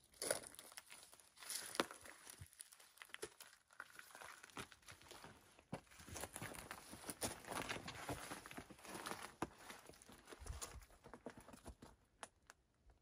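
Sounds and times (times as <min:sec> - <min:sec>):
footsteps on gravel: 0:00.2 - 0:03.2, 0:03.9 - 0:11.9.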